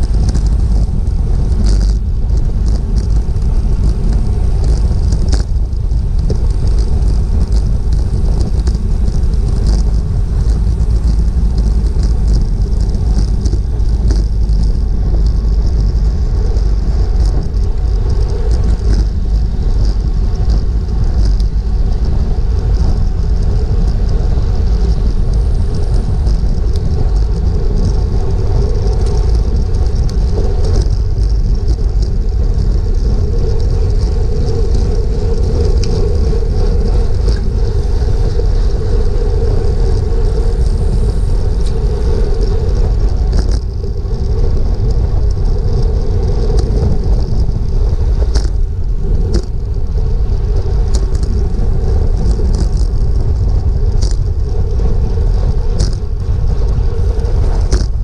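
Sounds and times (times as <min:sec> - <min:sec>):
wind rush on microphone: 0:00.0 - 0:58.0.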